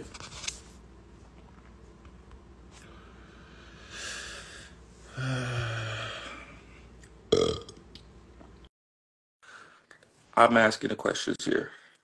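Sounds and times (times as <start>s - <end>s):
man burping: 7.3s - 7.8s.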